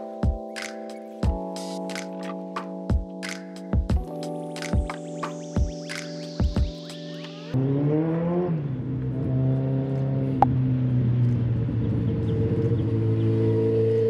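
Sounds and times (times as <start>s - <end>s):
background music: 0.0s - 7.6s
loud motor vehicle engine: 7.6s - 14.0s.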